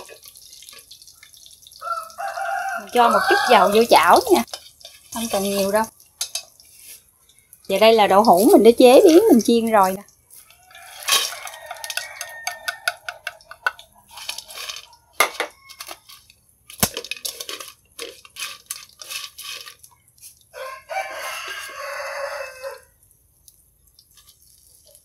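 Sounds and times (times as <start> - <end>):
rooster crowing: 1.8 - 3.9, 10.5 - 13.4, 20.5 - 23.0
chopsticks clattering in wok: 4.4 - 6.6, 10.9 - 19.8.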